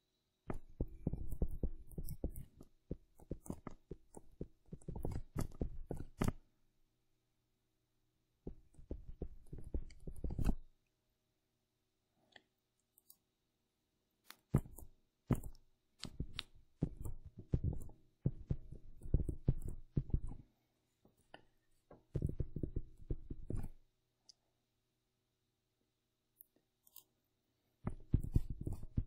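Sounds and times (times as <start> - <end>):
stylus tapping on tablet: 0.5 - 6.4, 8.5 - 10.7, 14.4 - 20.4, 21.9 - 23.8, 27.8 - 29.0.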